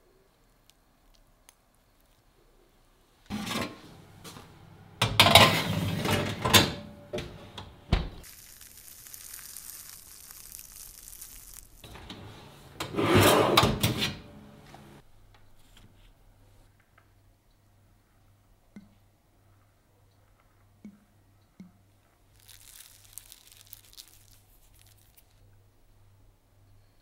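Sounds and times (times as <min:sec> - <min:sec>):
metal baking tray scraping: 0:03.3 - 0:04.0, 0:05.0 - 0:07.6, 0:11.9 - 0:14.9
oven door shutting: 0:03.3 - 0:04.4, 0:05.0 - 0:08.2, 0:11.8 - 0:15.0
oven hissing: 0:03.3 - 0:15.0.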